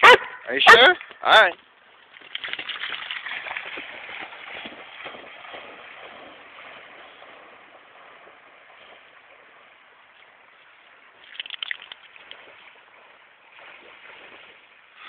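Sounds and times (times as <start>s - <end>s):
rush of open water: 0.0s - 15.0s
wind: 0.0s - 15.0s.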